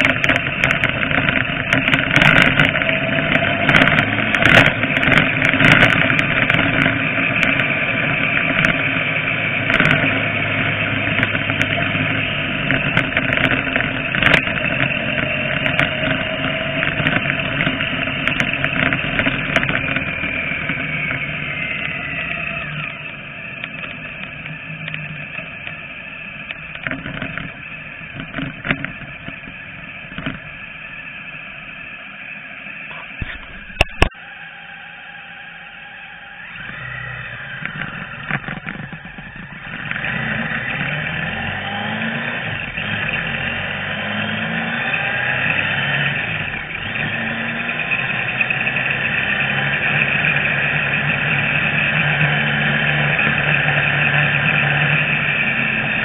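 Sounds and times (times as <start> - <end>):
vehicle engine running: 0.0 - 56.0.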